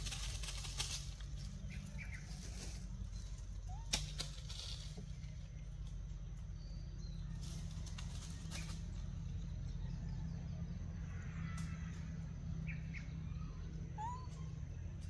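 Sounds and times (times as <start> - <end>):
dry leaves rustling: 0.0 - 9.7.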